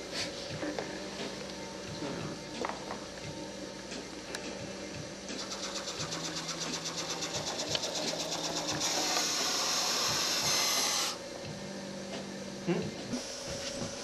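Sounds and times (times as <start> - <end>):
robot drive motors whirring: 5.4 - 11.2.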